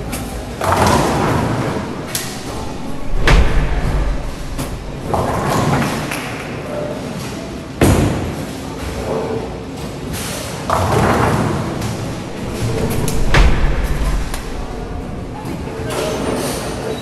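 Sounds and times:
bowling alley clatter: 0.0s - 9.2s, 9.9s - 17.0s
bowling ball crashing into pins: 0.6s - 6.5s, 10.7s - 15.9s
bowling ball thudding and rolling: 0.6s - 6.6s, 10.7s - 16.0s.

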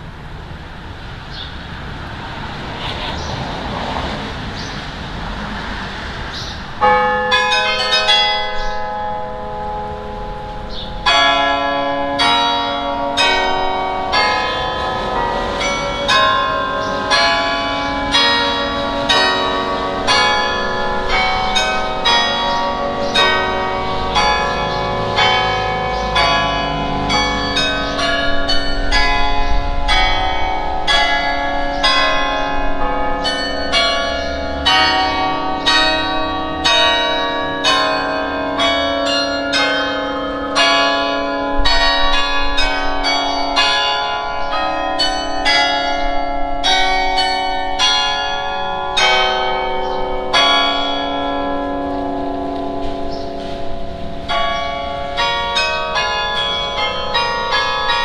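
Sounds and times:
carillon bells playing melody: 6.8s - 58.0s.

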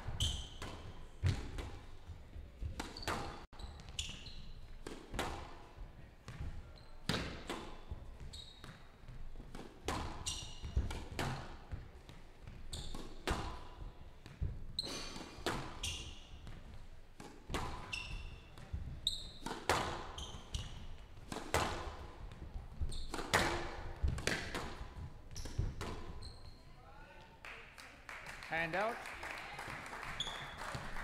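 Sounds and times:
shoes squeaking on court: 0.0s - 1.9s, 2.6s - 4.9s, 6.3s - 13.5s, 14.2s - 16.9s, 17.5s - 26.8s
squash ball smacks: 21.3s - 22.4s, 23.0s - 24.9s.

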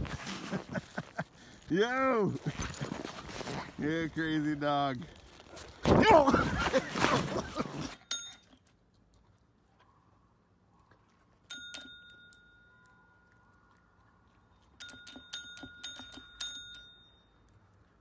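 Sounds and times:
service bell ringing: 8.0s - 8.6s, 11.5s - 12.8s, 14.8s - 17.4s.

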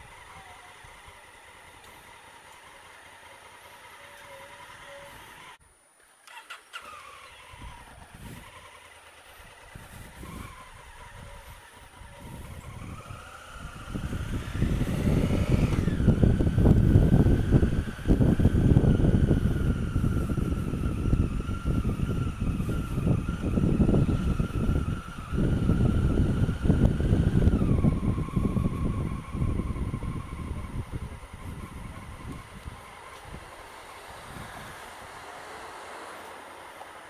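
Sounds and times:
motorcycle engine running: 0.0s - 5.6s, 7.2s - 37.0s
wind buffeting on microphone: 7.4s - 8.8s, 9.4s - 35.5s.

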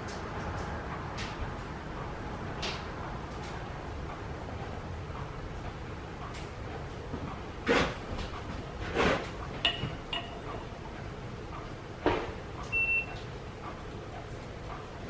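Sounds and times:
metal tools knocking on iron: 9.6s - 10.8s.

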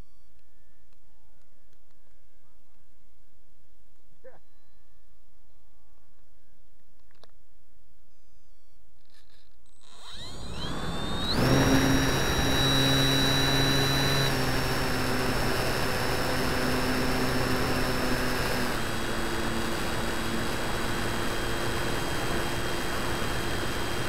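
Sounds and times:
model plane motor whining: 9.8s - 24.0s.

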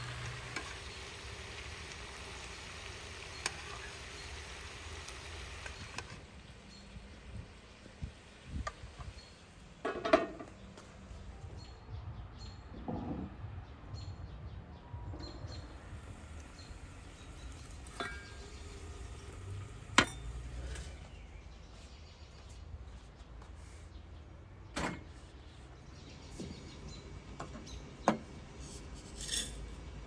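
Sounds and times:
outdoor ambience rumble: 0.0s - 30.0s
metal cookware clinking: 17.6s - 21.0s, 29.0s - 29.8s.

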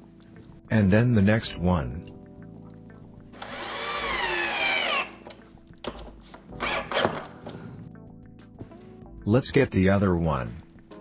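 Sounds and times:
cordless drill driving screw: 3.4s - 5.2s, 6.6s - 7.4s.

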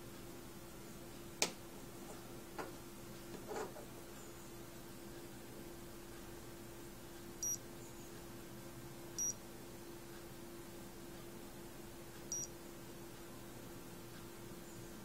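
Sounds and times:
thermometer high-pitched beeps: 9.2s - 9.4s, 12.3s - 12.5s.

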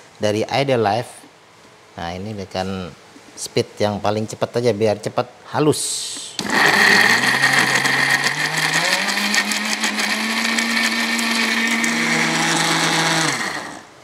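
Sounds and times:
electric blender running: 6.4s - 14.0s.

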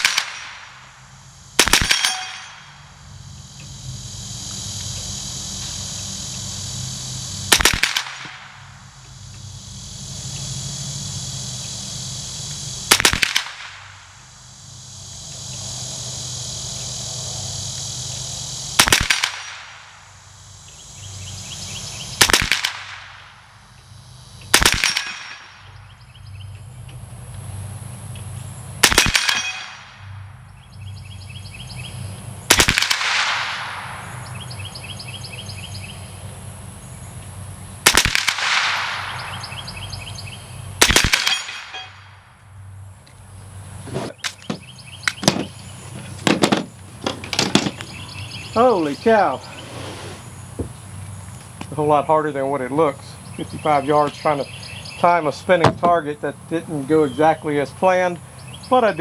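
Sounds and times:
rifle shots with echo: 0.0s - 0.9s, 1.6s - 2.7s, 7.5s - 8.6s, 12.9s - 14.0s, 18.8s - 20.0s, 22.2s - 23.4s, 24.5s - 25.6s, 28.8s - 30.0s, 32.5s - 34.2s, 37.8s - 39.7s, 40.8s - 42.0s.

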